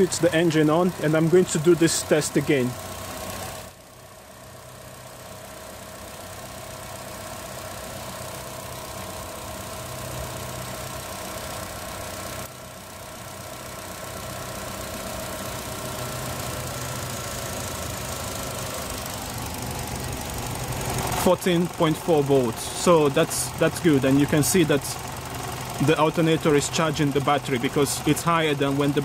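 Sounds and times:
car engine idling: 0:00.0 - 0:29.0.

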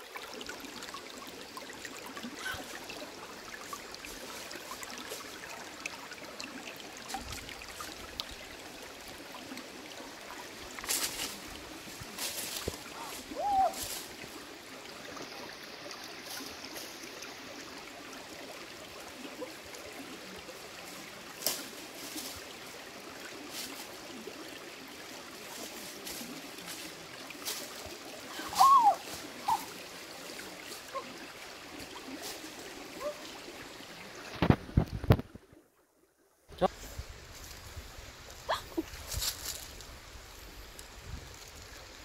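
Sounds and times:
running water rushing: 0:00.0 - 0:35.6, 0:36.5 - 0:42.0
dry leaves and twigs crackling: 0:10.3 - 0:14.3, 0:21.4 - 0:22.5, 0:25.6 - 0:31.2, 0:37.3 - 0:40.0.

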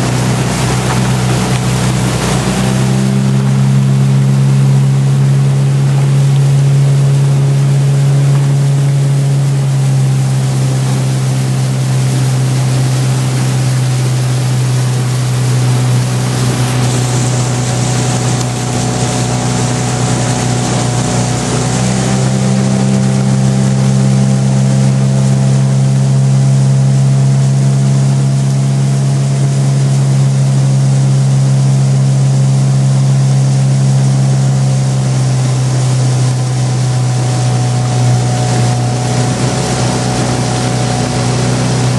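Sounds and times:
outboard motor running: 0:00.0 - 0:41.9.

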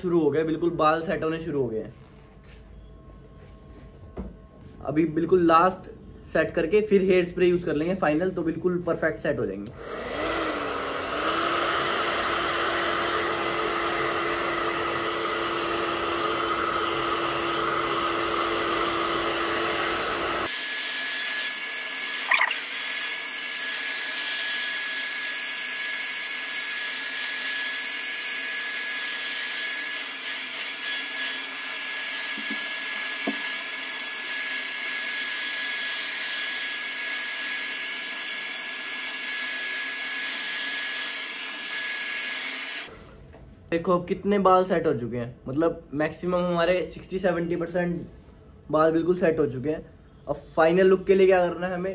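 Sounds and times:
hair dryer running: 0:09.7 - 0:43.0.

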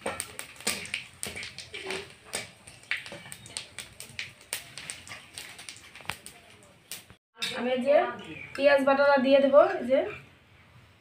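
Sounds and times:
spices frying in hot oil: 0:00.0 - 0:07.2.

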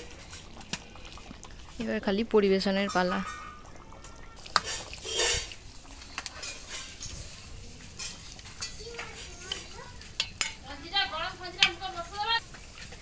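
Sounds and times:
gravy being stirred: 0:00.0 - 0:13.0
metal ladle clinking on pot: 0:04.6 - 0:05.5, 0:08.0 - 0:10.6.

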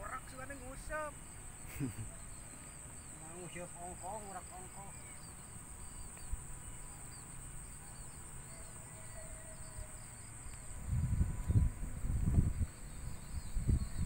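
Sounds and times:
high-pitched insect buzz: 0:00.0 - 0:14.0
low rumbling on microphone: 0:10.7 - 0:14.0.

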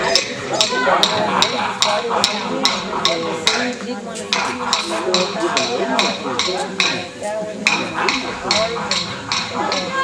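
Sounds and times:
men chanting: 0:00.0 - 0:03.8.

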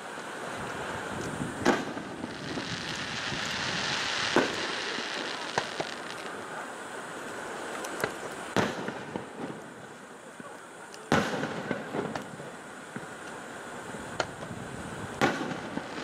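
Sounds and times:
firework hiss: 0:00.0 - 0:16.0
firework shells bursting: 0:01.2 - 0:06.4.

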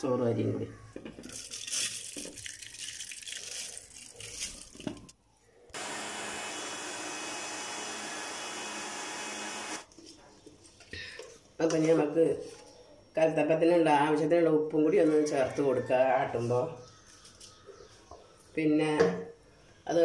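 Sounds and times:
water pouring into a jar: 0:01.3 - 0:05.1
mixer grinder motor running: 0:05.7 - 0:09.9.

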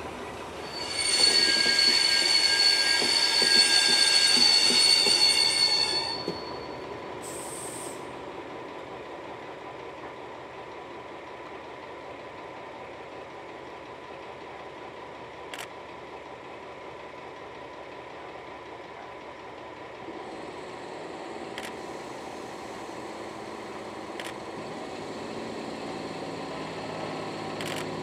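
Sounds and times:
locomotive diesel engine running: 0:08.1 - 0:28.0.

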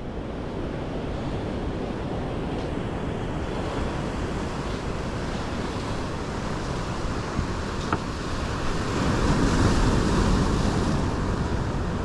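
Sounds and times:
surf breaking on rocky shore: 0:02.8 - 0:12.0.

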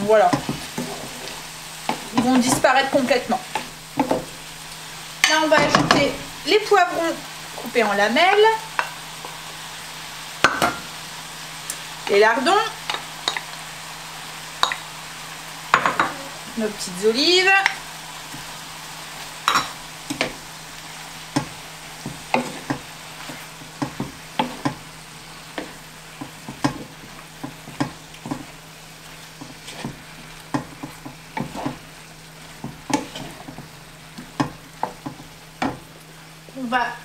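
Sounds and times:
food sizzling: 0:00.0 - 0:37.0
spoon scraping a pan: 0:21.4 - 0:28.6, 0:29.3 - 0:31.9, 0:32.5 - 0:35.8.

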